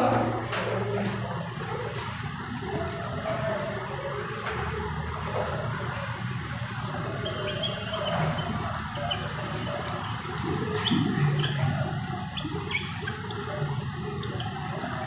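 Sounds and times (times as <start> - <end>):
steady background noise: 0.0 - 15.0
squeaky writing on board: 7.2 - 11.6, 12.4 - 13.4.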